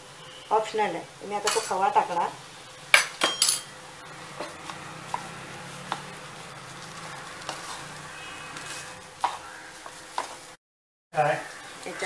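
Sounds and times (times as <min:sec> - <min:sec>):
soft sizzle: 0:00.0 - 0:10.6
spatula stirring thick mixture: 0:04.0 - 0:10.6
spatula tapping pan: 0:04.4 - 0:06.2, 0:08.6 - 0:10.4.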